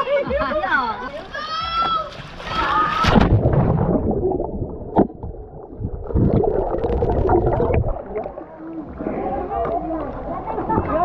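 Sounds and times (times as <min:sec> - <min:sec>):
underwater bubbling: 0:03.1 - 0:11.0.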